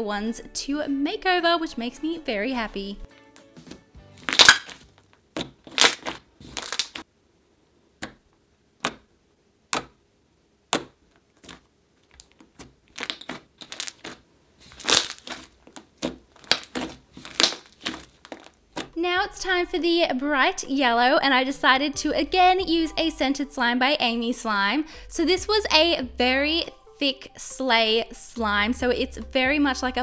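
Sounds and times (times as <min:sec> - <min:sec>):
slime crackling and popping: 0:04.2 - 0:07.1, 0:10.7 - 0:18.6.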